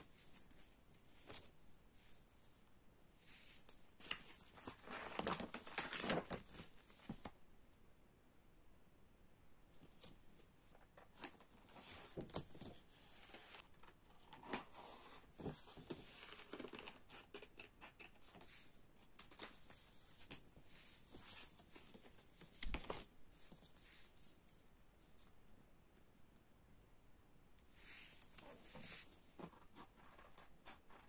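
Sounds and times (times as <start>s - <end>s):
paper rustling and crinkling: 3.6s - 7.4s, 9.8s - 24.4s.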